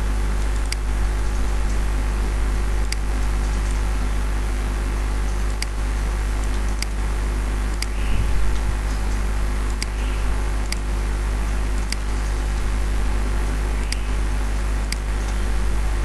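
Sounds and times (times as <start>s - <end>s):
low electrical hum with hiss: 0.0s - 16.0s
computer mouse clicks: 9.7s - 10.8s, 13.8s - 14.1s, 14.9s - 15.4s.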